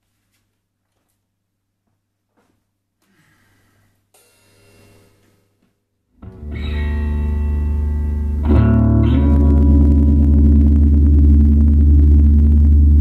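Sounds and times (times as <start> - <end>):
faint low hum: 4.8 - 13.0
electric guitar chord ringing: 6.2 - 13.0.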